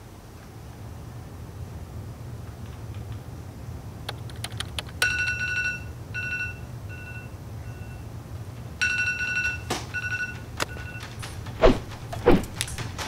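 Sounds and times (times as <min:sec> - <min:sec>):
sharp clicks: 0:04.1 - 0:05.0
mobile phone ringtone beeps: 0:08.8 - 0:11.0.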